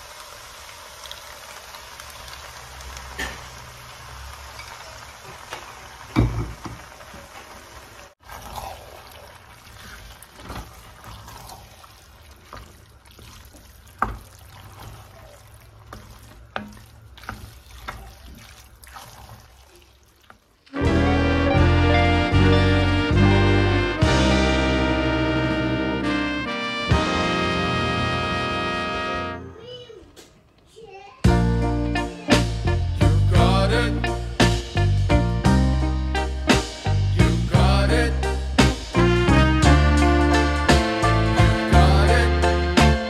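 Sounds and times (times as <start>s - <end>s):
cream sauce pouring: 8.0s - 20.8s
wooden spoon stirring pasta: 8.1s - 20.8s.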